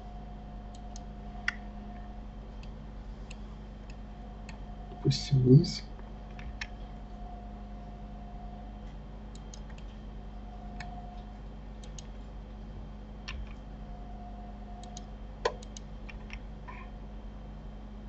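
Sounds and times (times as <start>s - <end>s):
low steady hum: 0.0s - 18.0s
computer mouse and keyboard clicks: 6.3s - 6.9s, 9.3s - 10.0s, 10.7s - 12.2s, 13.2s - 13.6s, 14.8s - 16.9s.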